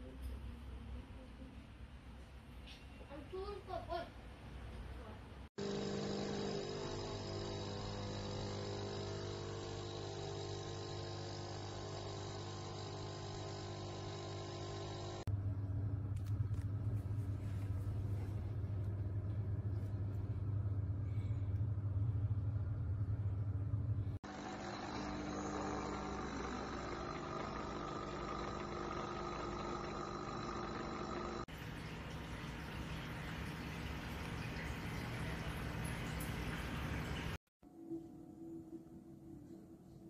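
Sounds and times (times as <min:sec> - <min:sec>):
coffee machine pump buzzing: 0:05.6 - 0:15.3, 0:24.2 - 0:37.4.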